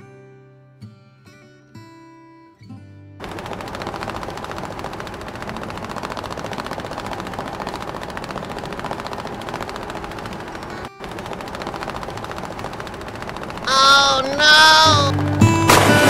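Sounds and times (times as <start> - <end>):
very fast rattle of clicks: 3.2 - 15.5.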